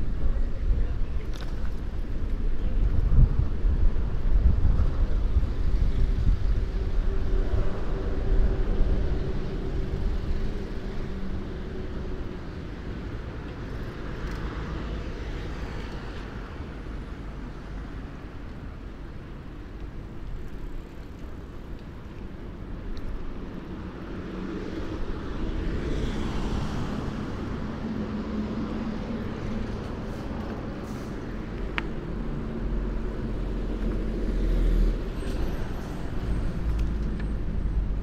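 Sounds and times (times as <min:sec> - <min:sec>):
traffic rumbling past: 0:23.7 - 0:38.0.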